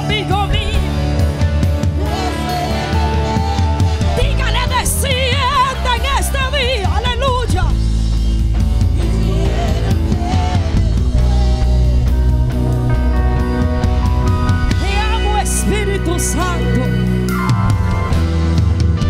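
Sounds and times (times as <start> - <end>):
worship band playing: 0.0 - 19.0
women singing: 1.9 - 7.2, 8.9 - 13.2.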